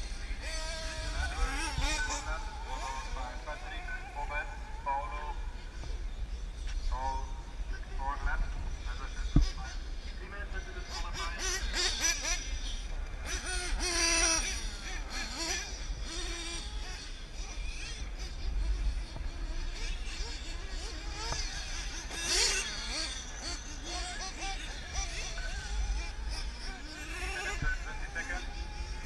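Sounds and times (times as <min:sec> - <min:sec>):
radio-controlled car motor: 0:00.0 - 0:04.2, 0:08.7 - 0:29.0.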